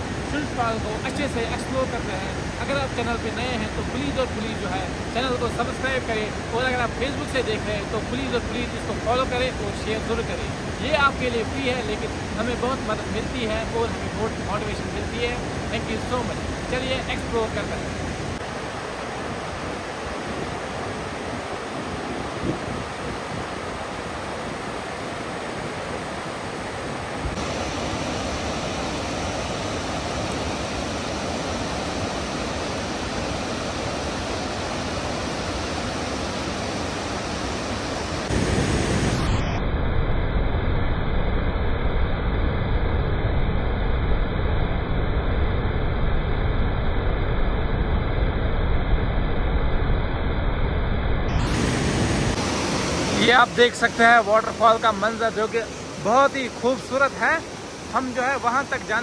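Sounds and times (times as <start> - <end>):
waterfall rushing: 0.0 - 39.4, 51.3 - 59.0.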